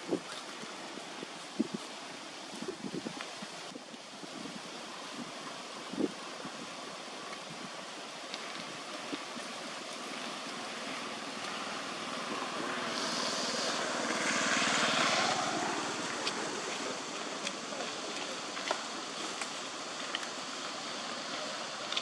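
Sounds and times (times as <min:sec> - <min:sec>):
engine passing by: 0:10.6 - 0:18.0.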